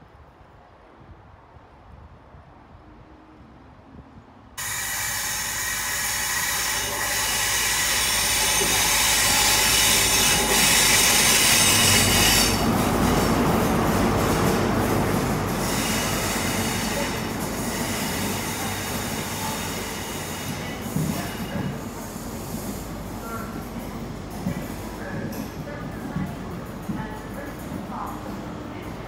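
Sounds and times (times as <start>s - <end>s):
train wheel squeal: 4.6s - 13.3s, 15.6s - 23.5s
train coaches rolling by: 4.6s - 29.0s.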